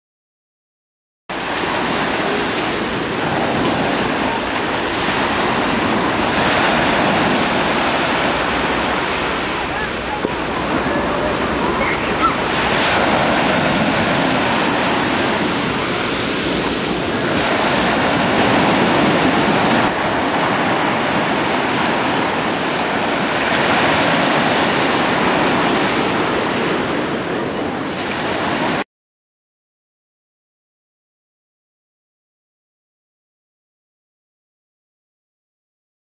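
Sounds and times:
sea waves breaking on shore: 1.3s - 28.8s.

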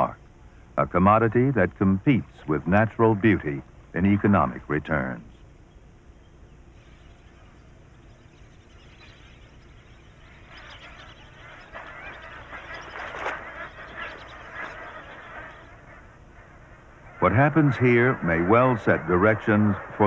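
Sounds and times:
flock of geese honking: 9.0s - 20.0s.

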